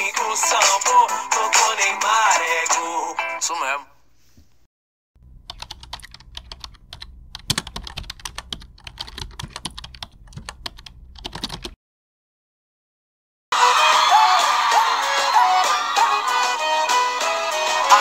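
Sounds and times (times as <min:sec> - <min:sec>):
low hum: 0:05.2 - 0:11.7
keyboard typing clicks: 0:05.4 - 0:11.8.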